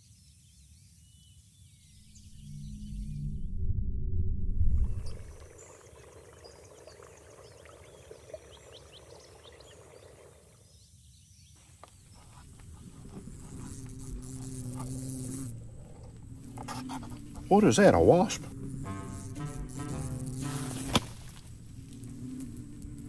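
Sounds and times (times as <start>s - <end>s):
birds chirping: 4.9s - 23.0s
insects: 4.9s - 23.0s
insect buzzing in flight: 12.2s - 23.0s.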